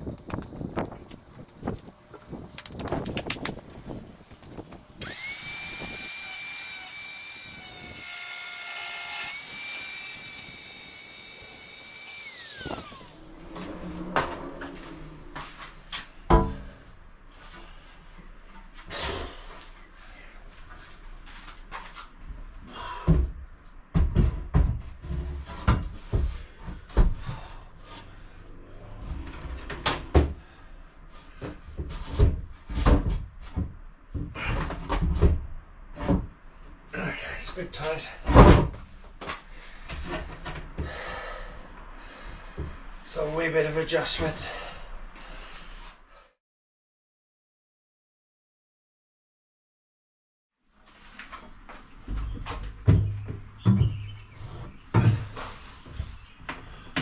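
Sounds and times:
angle grinder cutting stone: 5.0 - 13.4
grinder disc winding down: 5.0 - 13.6.

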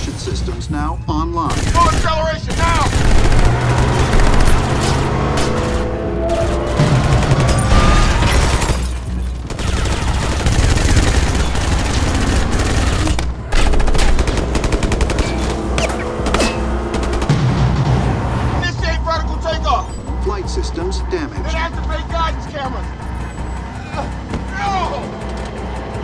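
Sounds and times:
film music: 0.0 - 26.0
automatic gunfire: 1.5 - 4.8, 9.4 - 15.5.

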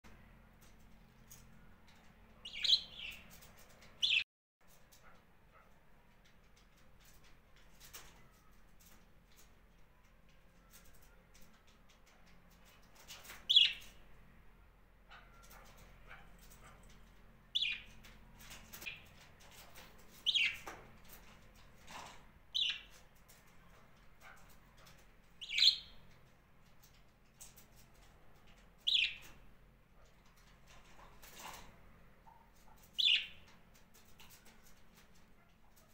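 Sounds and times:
budgerigar chirping: 2.4 - 3.2, 17.6 - 17.8, 22.6 - 22.8, 25.4 - 26.0, 28.9 - 29.2, 33.0 - 33.4.

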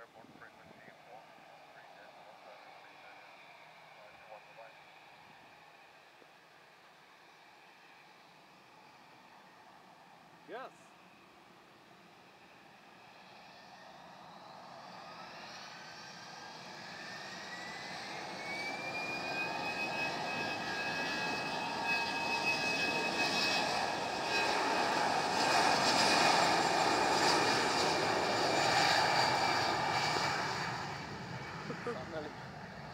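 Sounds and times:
jet engines spooling up: 14.2 - 32.9.

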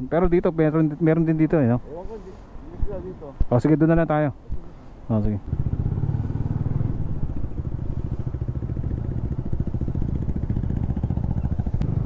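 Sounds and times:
motorcycle engine running: 5.5 - 12.0.

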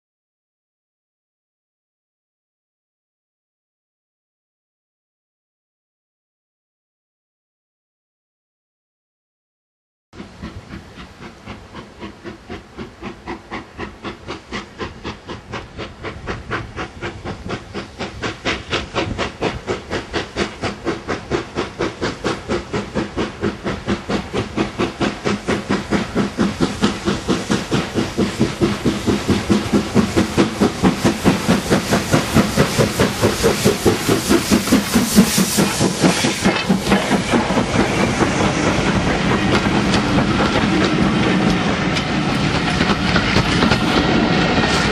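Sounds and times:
steam hissing: 10.2 - 44.9
steam locomotive exhaust beats: 10.2 - 44.9
train coaches rolling by: 10.2 - 44.9.

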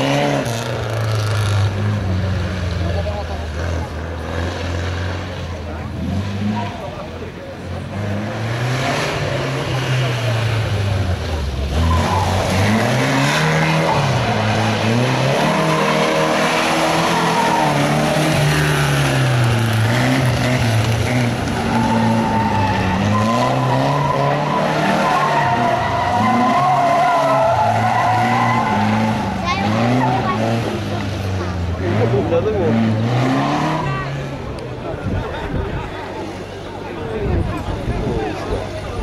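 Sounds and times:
car engine revving: 0.0 - 39.0
tyres squealing: 11.7 - 30.7.

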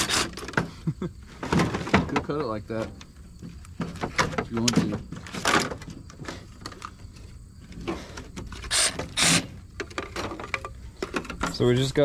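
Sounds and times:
metal and plastic clattering: 0.0 - 12.0
reciprocating saw cutting: 8.7 - 9.6.

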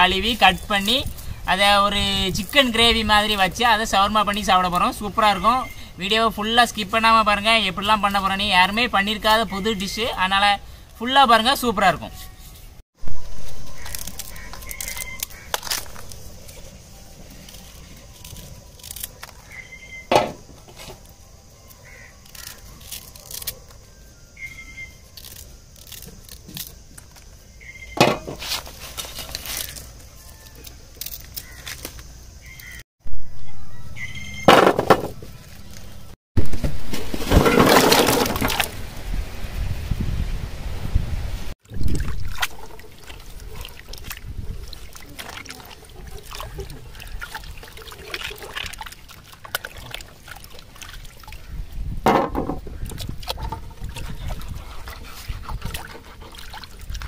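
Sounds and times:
knife scraping husk: 28.1 - 29.9
splashing into pot of water: 41.6 - 51.5.

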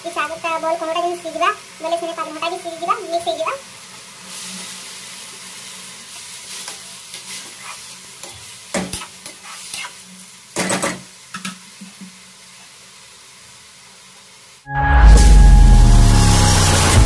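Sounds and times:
flower buds sizzling in a pan: 0.0 - 14.7.

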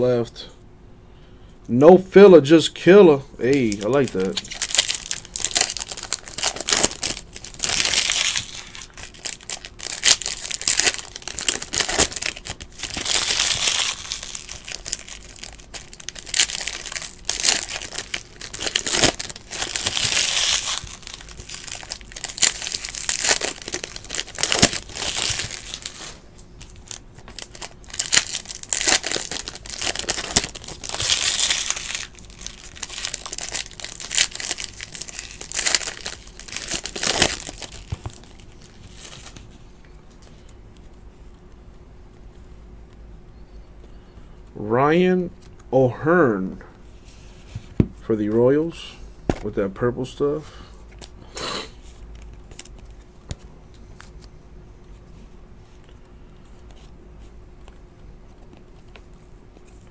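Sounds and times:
foil wrappers crinkling and tearing: 3.4 - 39.5, 51.7 - 53.4.

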